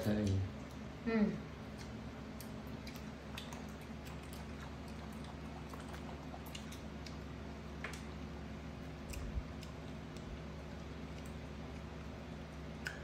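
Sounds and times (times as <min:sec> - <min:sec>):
steady low hum: 0:00.0 - 0:13.0
monkey chewing fruit: 0:01.6 - 0:08.2.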